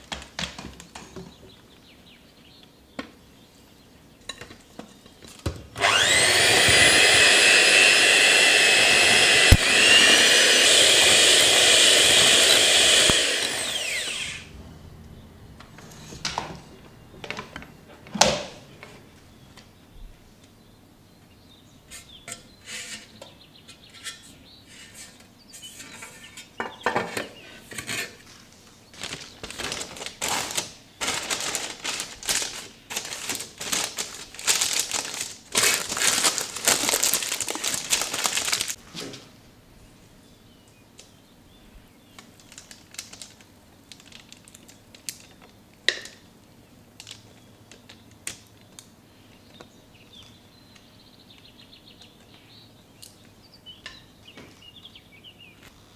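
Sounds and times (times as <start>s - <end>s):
baking paper crinkling: 28.2s - 38.8s, 42.1s - 45.6s.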